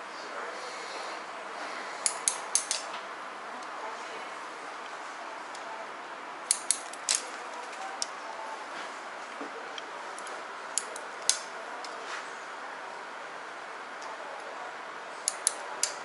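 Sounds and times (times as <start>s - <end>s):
scissors snipping hair: 15.3s - 16.0s.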